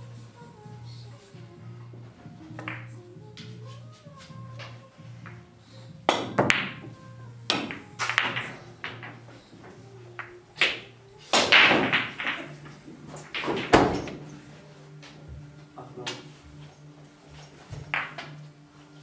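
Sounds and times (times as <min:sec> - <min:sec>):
pool balls clicking together: 0:02.0 - 0:03.6, 0:04.3 - 0:15.2, 0:17.4 - 0:18.7
pool cue striking ball: 0:02.5 - 0:03.0, 0:06.0 - 0:14.4, 0:17.6 - 0:18.5.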